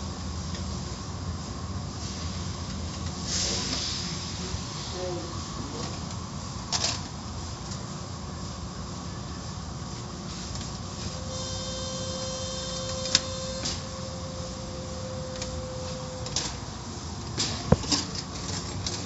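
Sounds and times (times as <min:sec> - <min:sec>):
faint steady whine: 0:07.4 - 0:19.0.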